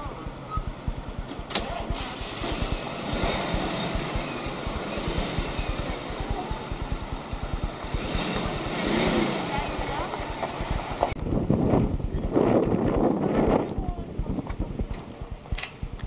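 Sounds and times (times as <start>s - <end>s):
vehicle engine idling: 0.0s - 12.8s.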